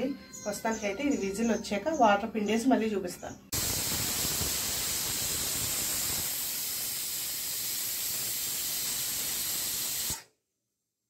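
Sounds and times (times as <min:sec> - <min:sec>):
pressure cooker whistle hissing: 0:03.6 - 0:10.3.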